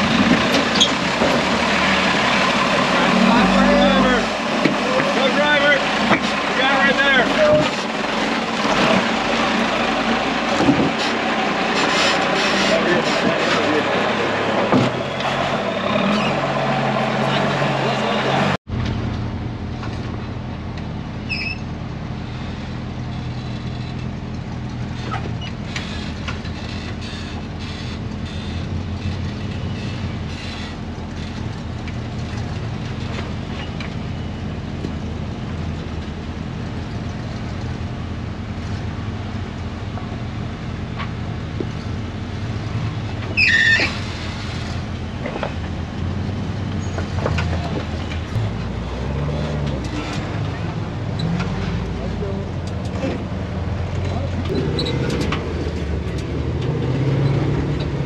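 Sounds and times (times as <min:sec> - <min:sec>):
truck engine running at low revs: 0:00.0 - 0:58.0
high-pitched squeal: 0:00.6 - 0:18.6, 0:43.2 - 0:44.8.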